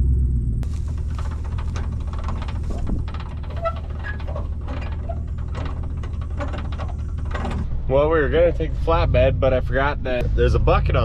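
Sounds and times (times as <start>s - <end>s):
engine idling: 0.0s - 11.0s
footsteps: 0.6s - 7.7s.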